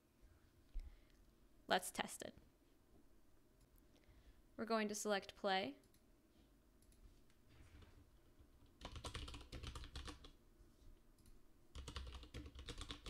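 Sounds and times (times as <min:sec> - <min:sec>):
typing on computer keyboard: 0:08.8 - 0:10.4, 0:11.2 - 0:13.0.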